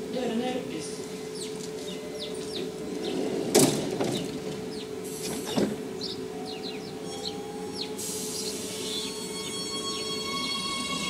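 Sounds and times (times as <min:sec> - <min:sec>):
steady hum: 0:00.0 - 0:10.6
train doors thudding shut: 0:01.8 - 0:07.4.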